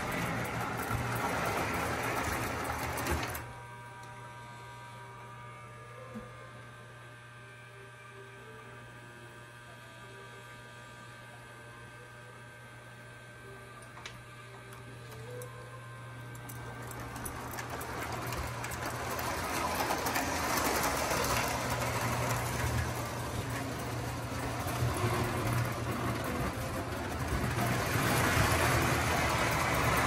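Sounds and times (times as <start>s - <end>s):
model train whirring and clattering: 0.0s - 3.6s, 16.2s - 30.0s
low electrical hum: 0.0s - 30.0s.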